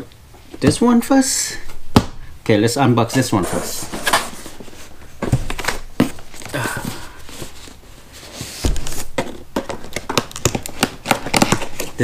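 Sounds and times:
cardboard box rustling and scraping: 3.2 - 9.4.

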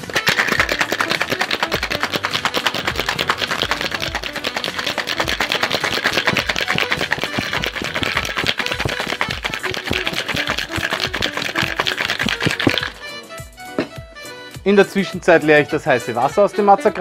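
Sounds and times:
ice cubes rattling in shaker: 0.0 - 13.0.

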